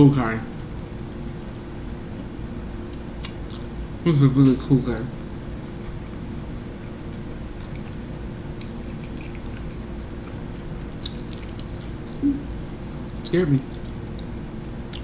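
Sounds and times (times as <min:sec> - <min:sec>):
steady low hum: 0:00.0 - 0:15.0
person eating noodles: 0:08.6 - 0:12.4.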